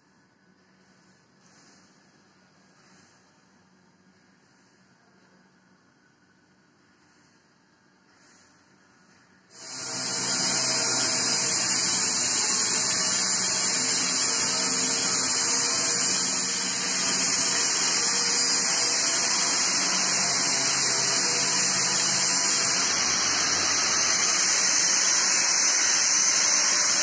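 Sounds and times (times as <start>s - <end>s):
arc welding hiss and buzz: 9.5s - 27.0s.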